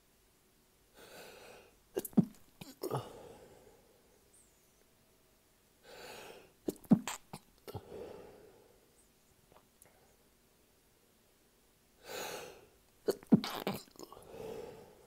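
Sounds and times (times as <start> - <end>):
in-drawn breath: 1.0 - 1.8, 5.8 - 6.6, 7.7 - 8.9, 12.0 - 12.7, 14.2 - 15.0
person sneezing: 2.0 - 3.4, 6.7 - 8.0, 12.1 - 14.2.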